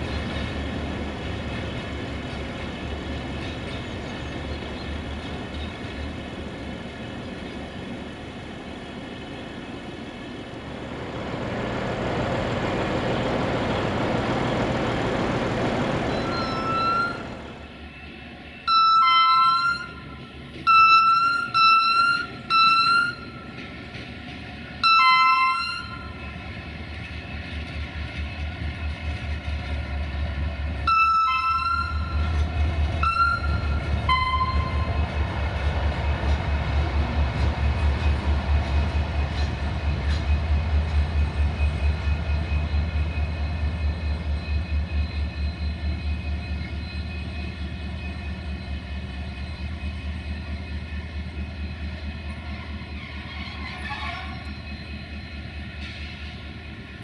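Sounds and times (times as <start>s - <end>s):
diesel locomotive engine pulsing: 0.0s - 57.0s
locomotive two-tone horn blasts: 16.2s - 17.3s, 18.7s - 23.4s, 24.8s - 26.2s, 30.8s - 32.4s, 33.0s - 35.0s.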